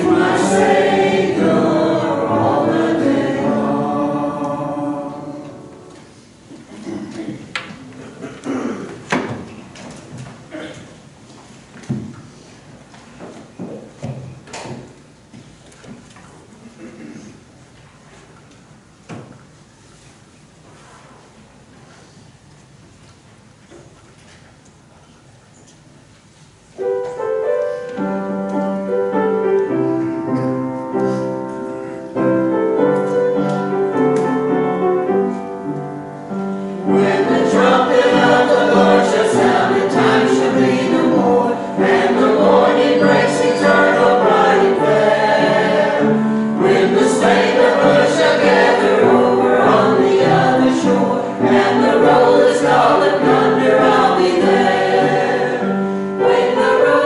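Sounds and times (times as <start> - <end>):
choir singing a hymn: 0.0 - 6.4, 28.2 - 57.0.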